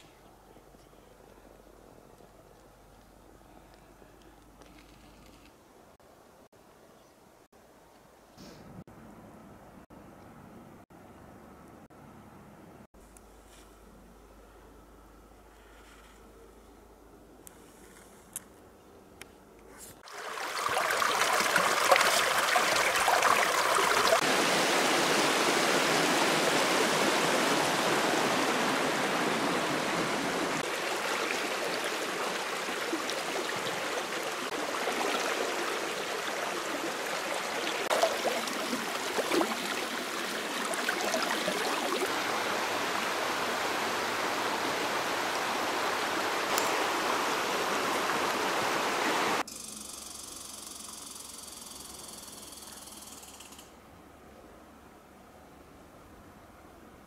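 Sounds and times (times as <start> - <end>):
river water rushing over stones: 20.0 - 49.4.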